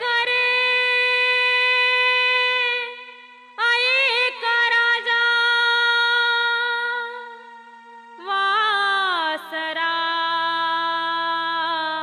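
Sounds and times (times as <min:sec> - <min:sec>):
woman singing devotional song: 0:00.0 - 0:12.0.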